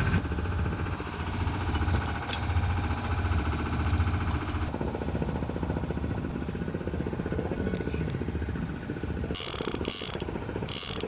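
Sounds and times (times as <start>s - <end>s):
boat engine humming: 0.0s - 11.0s.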